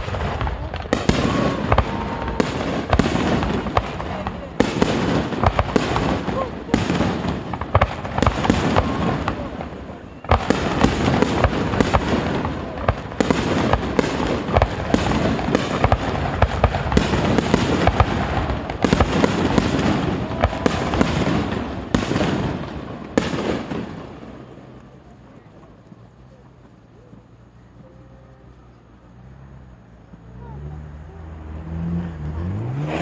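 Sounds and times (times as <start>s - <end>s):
fireworks bangs and crackling: 0.0s - 33.0s.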